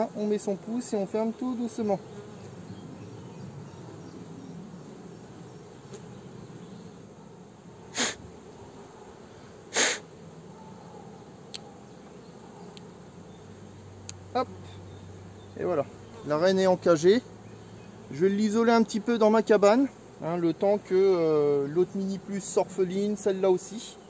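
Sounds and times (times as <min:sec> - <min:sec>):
honeybees buzzing: 0:00.0 - 0:24.0
short sharp hiss puffs: 0:07.9 - 0:08.3, 0:09.6 - 0:10.1.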